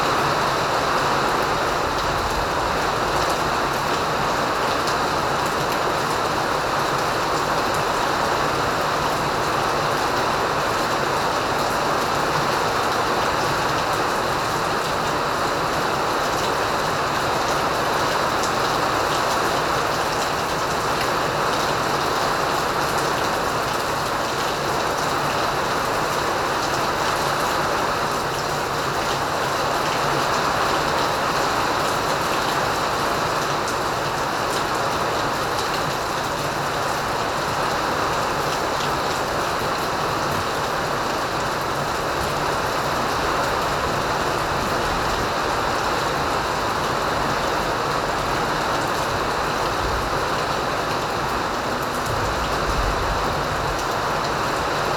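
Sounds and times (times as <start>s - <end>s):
rain pouring: 0.0s - 54.9s.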